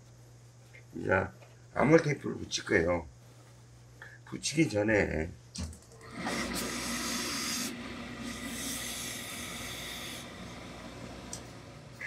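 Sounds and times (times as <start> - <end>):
steam iron hissing: 6.0 - 12.0.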